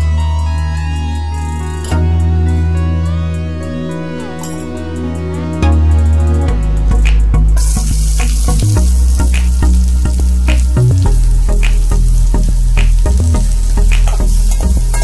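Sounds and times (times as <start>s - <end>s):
onion sizzling in hot oil: 7.6s - 15.0s.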